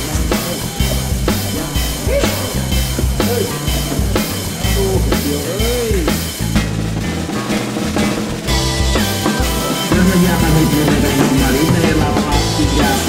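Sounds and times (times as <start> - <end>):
bass line: 0.0 - 13.0
drum kit beat: 0.0 - 13.0
rock music: 0.0 - 13.0.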